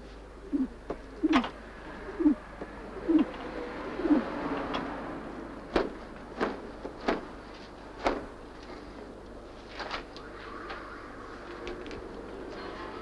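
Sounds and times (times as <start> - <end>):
pigeons cooing: 0.0 - 4.8.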